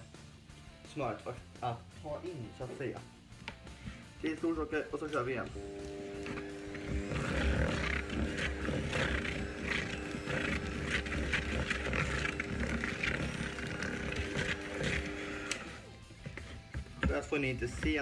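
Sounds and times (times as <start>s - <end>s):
beaters rattling through buttercream: 4.5s - 18.0s
electric hand mixer running: 5.2s - 18.0s.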